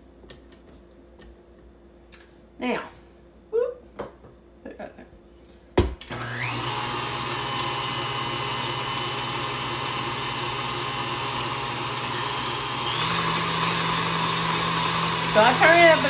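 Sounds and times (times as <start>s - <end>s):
stand mixer motor whining: 6.0s - 16.0s.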